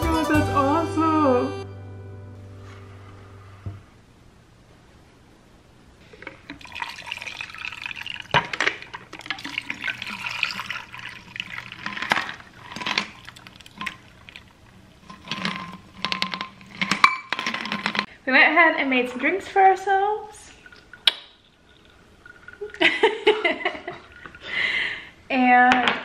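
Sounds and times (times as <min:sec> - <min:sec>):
liquid pouring and splashing: 0:06.2 - 0:18.1, 0:20.4 - 0:24.8
ice clinking against glass: 0:09.4 - 0:14.0.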